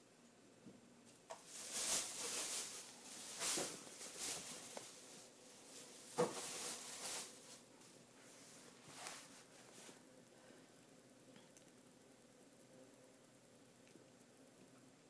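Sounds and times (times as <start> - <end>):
cat rustling with a toy: 1.3 - 10.1.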